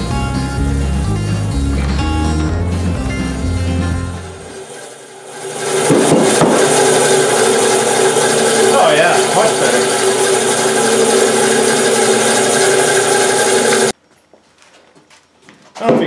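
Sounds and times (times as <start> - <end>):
bandsaw running hum: 0.0 - 14.0
bandsaw blade rasping in wood: 4.5 - 13.9.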